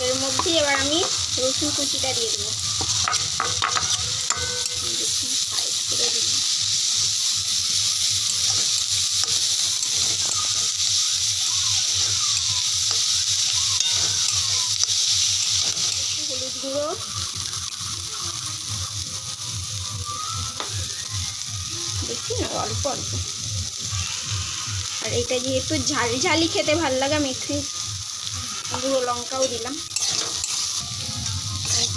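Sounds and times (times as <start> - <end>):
vegetables sizzling in hot oil: 0.0 - 31.9
spatula knocking and scraping pan: 2.8 - 4.8.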